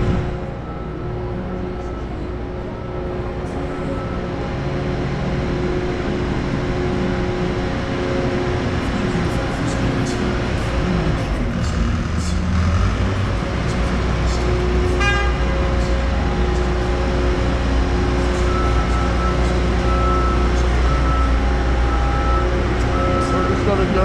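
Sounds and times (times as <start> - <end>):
vehicle engine running: 0.0 - 24.0
short beeps: 0.6 - 2.3, 18.3 - 24.0
horn toot: 14.9 - 15.6.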